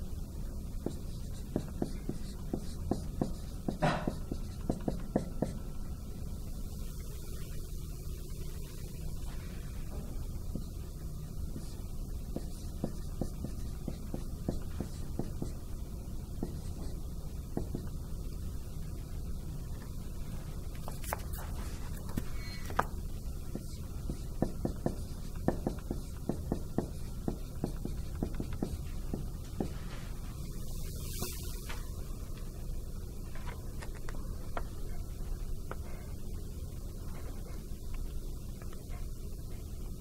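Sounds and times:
low room hum: 0:00.0 - 0:40.0
marker writing on whiteboard: 0:00.7 - 0:05.6, 0:09.9 - 0:15.6, 0:16.3 - 0:18.0, 0:20.8 - 0:30.1.

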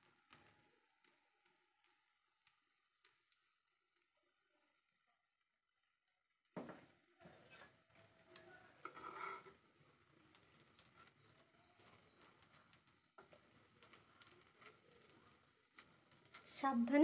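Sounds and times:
spatula scraping frying pan: 0:07.4 - 0:09.7.

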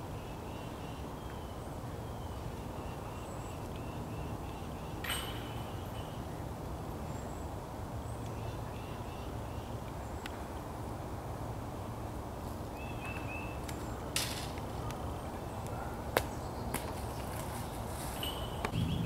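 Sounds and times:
low rumble: 0:18.7 - 0:19.0.

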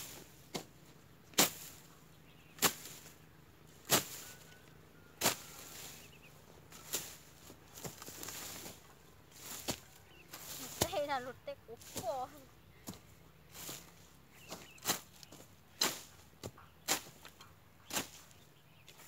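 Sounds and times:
blade cutting dry grass: 0:00.0 - 0:19.0.

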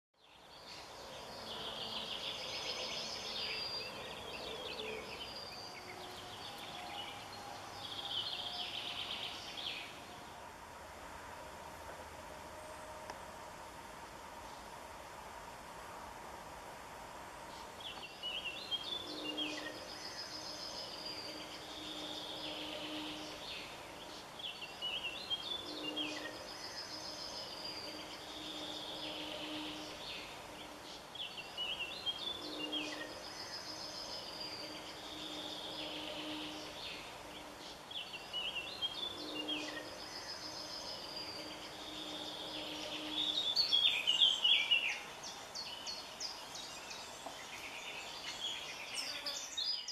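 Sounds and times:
low steady hum: 0:00.2 - 0:49.4
background hiss: 0:00.2 - 0:49.9.

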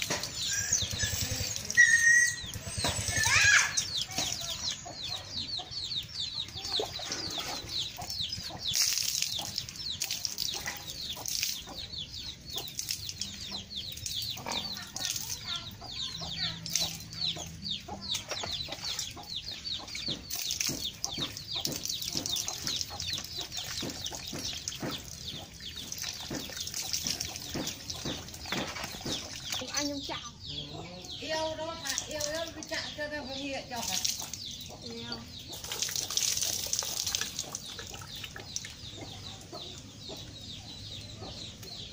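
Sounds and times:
birds chirping: 0:00.0 - 0:41.9
water splashing on horse: 0:06.7 - 0:11.9, 0:12.5 - 0:15.4, 0:19.9 - 0:29.8, 0:33.8 - 0:34.6, 0:35.5 - 0:39.1.

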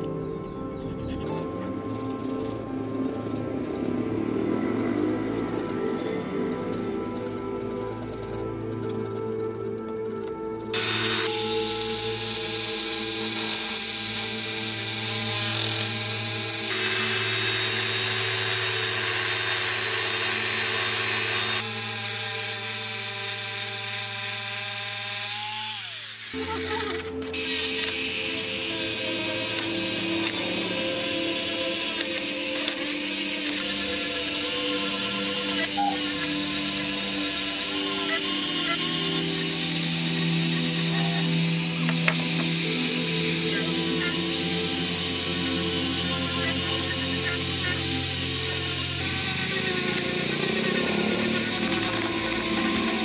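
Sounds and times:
angle grinder grinding metal: 0:01.0 - 0:53.0.

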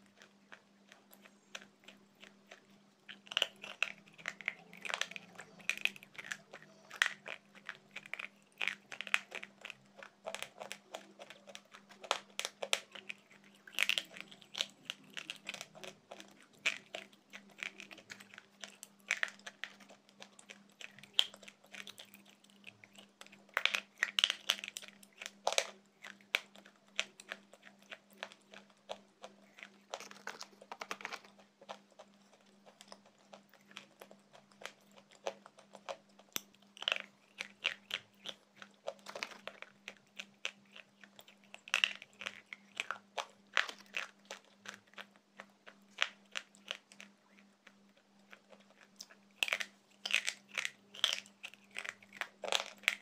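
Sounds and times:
gritty crunching of chewing: 0:00.0 - 0:53.0.

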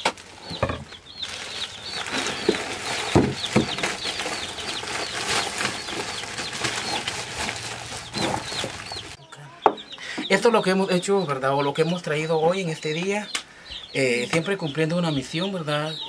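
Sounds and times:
plastic bags rustling: 0:00.0 - 0:09.2
chickens chirping: 0:00.0 - 0:16.0
packages knocking on wooden table: 0:02.1 - 0:09.2.

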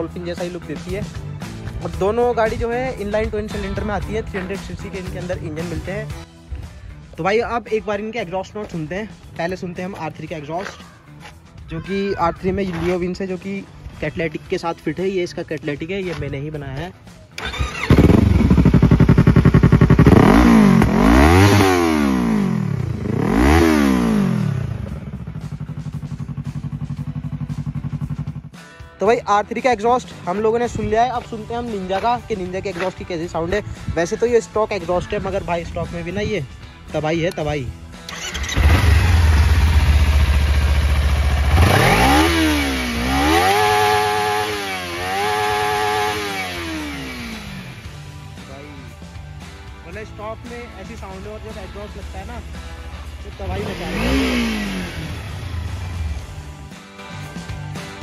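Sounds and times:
motorcycle engine revving and idling: 0:17.4 - 0:28.6, 0:38.1 - 0:48.7, 0:50.6 - 0:56.7.

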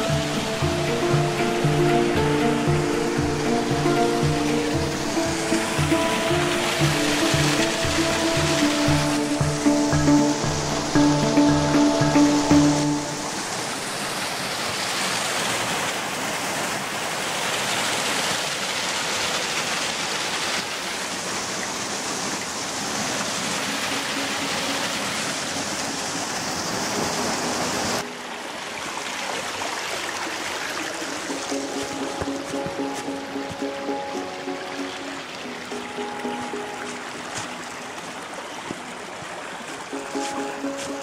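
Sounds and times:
faint music: 0:00.0 - 0:13.5, 0:30.8 - 0:41.0
stream water rushing: 0:00.0 - 0:41.0.

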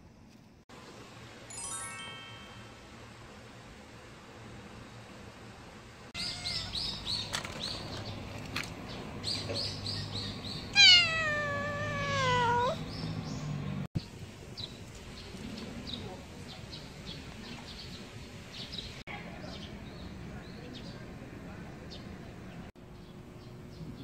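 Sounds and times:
cat meowing: 0:06.2 - 0:07.0, 0:10.7 - 0:12.8.

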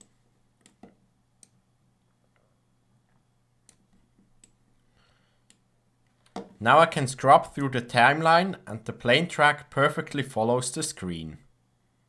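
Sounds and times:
computer mouse clicking: 0:00.0 - 0:01.6.

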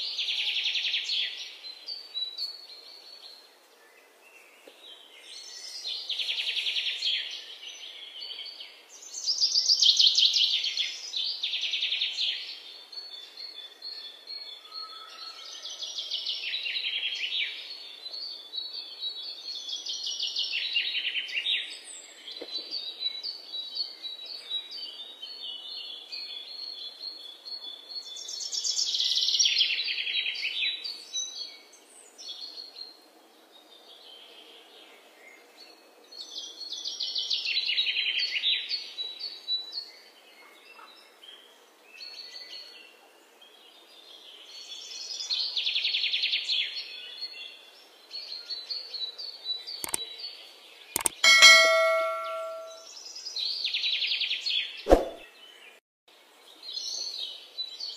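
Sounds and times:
birds chirping trills: 0:49.8 - 0:50.0, 0:51.0 - 0:52.8.

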